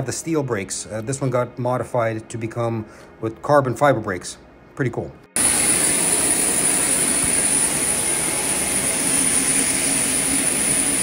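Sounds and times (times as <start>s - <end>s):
jet turbine roar and whine: 5.4s - 11.0s.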